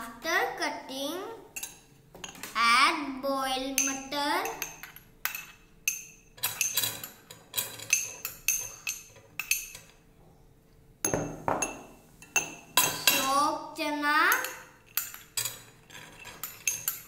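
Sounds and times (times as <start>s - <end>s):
metal spoon clinking on glass bowls: 1.6s - 2.4s, 3.7s - 10.0s, 11.0s - 13.4s, 14.3s - 17.0s.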